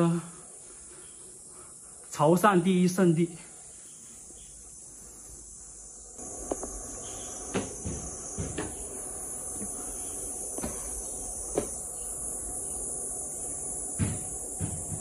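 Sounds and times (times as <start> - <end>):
steady high hiss: 0.0 - 15.0
footsteps on stone: 10.5 - 11.8.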